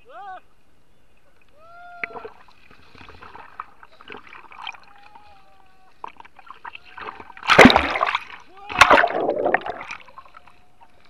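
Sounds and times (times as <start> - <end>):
water splashing around raft: 2.0 - 11.0
loud splash: 7.0 - 10.1.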